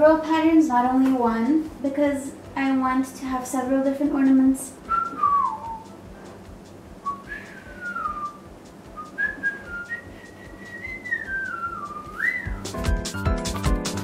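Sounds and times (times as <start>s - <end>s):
person whistling a tune: 4.9s - 6.0s, 7.0s - 12.8s.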